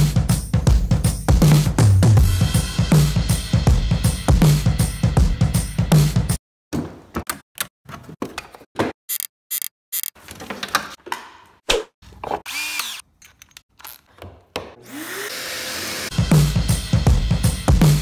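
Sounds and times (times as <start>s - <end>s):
clicks and knocks of tools and wood: 6.8s - 14.8s
power tool motor whining: 12.5s - 13.0s, 14.8s - 16.1s.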